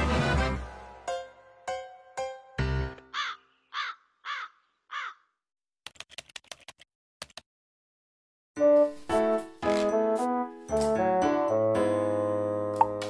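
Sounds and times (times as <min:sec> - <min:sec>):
music: 0:00.0 - 0:03.1, 0:08.6 - 0:13.0
crow cawing: 0:03.1 - 0:05.3
rapid typing-like clicks: 0:05.8 - 0:07.4.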